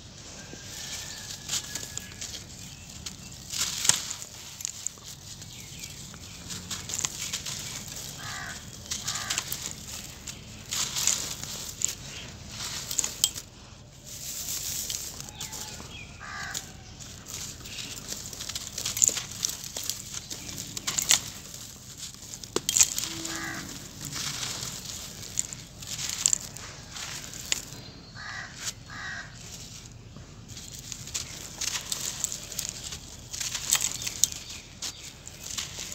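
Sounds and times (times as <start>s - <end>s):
grains pattering down: 0.8s - 13.4s, 14.0s - 27.8s
hands crushing gritty lumps: 0.8s - 27.8s
crow cawing: 8.1s - 9.6s, 16.2s - 16.7s, 23.1s - 23.9s, 28.2s - 29.4s.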